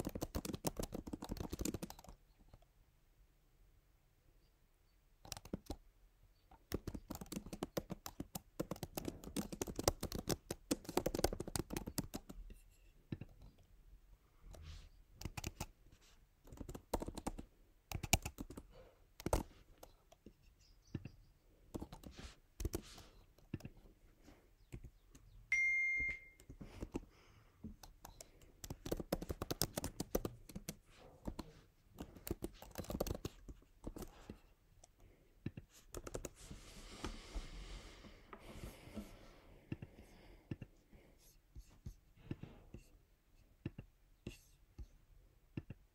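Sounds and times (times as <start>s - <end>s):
laptop keyboard typing: 0.0s - 2.6s, 5.2s - 5.9s, 6.5s - 13.6s, 14.5s - 15.8s, 16.4s - 20.3s, 21.7s - 23.9s, 24.7s - 27.1s, 27.7s - 36.5s
short electronic beep: 25.5s - 26.4s.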